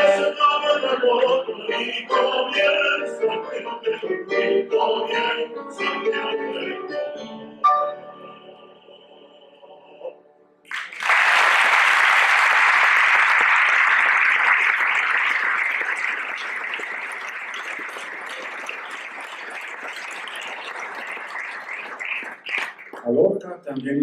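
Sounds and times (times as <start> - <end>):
audience applauding: 10.7 - 23.2.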